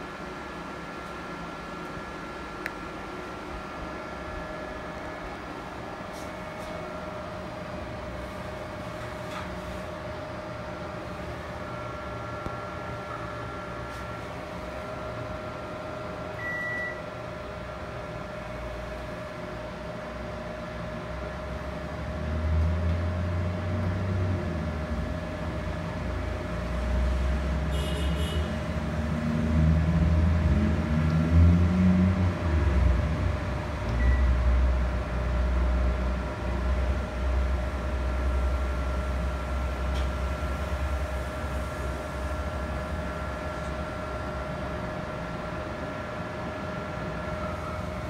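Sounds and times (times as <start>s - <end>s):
steady hum: 0.0s - 22.4s, 31.6s - 48.0s
air conditioner beeps: 16.2s - 17.2s, 33.9s - 34.4s.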